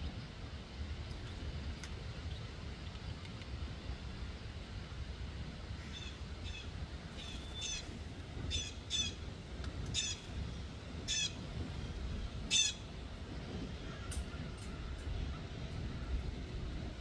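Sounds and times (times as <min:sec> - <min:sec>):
blue jay squawking calls: 0:05.8 - 0:09.2, 0:09.9 - 0:10.3, 0:11.1 - 0:11.4, 0:12.5 - 0:12.9.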